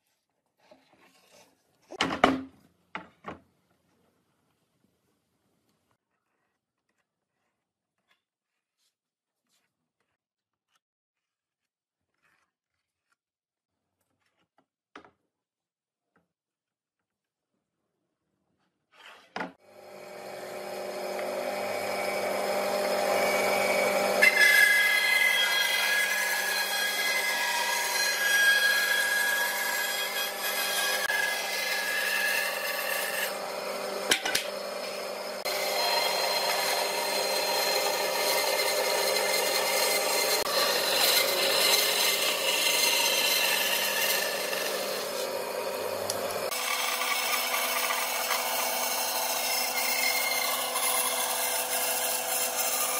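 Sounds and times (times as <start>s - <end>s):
saw blade cutting wood: 19.0s - 52.9s
band saw motor: 19.6s - 52.9s.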